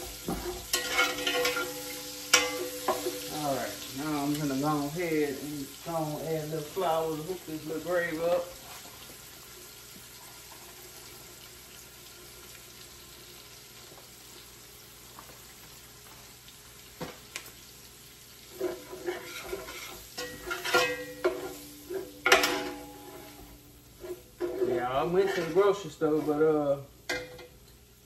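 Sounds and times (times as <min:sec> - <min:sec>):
utensil scraping and clattering: 0:00.0 - 0:03.5, 0:18.5 - 0:27.5
oil sizzling in a skillet: 0:00.0 - 0:28.0.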